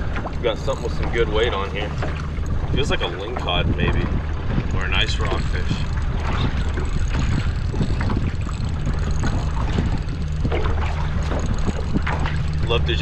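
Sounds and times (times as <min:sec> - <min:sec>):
steady low hum: 0:00.0 - 0:13.0
wind buffeting microphone: 0:00.0 - 0:13.0.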